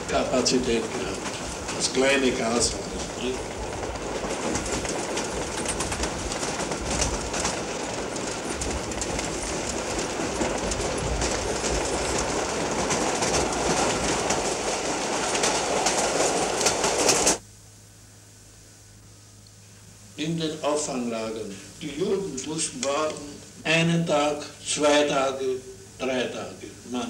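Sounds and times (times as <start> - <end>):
freight train rumbling past: 0.0 - 17.4
wheels clacking over rail joints: 0.0 - 17.4.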